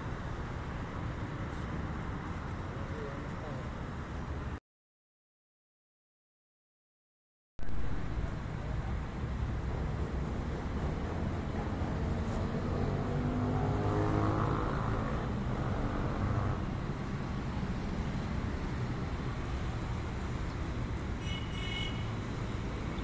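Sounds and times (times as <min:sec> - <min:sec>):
low traffic rumble: 0:07.6 - 0:23.0.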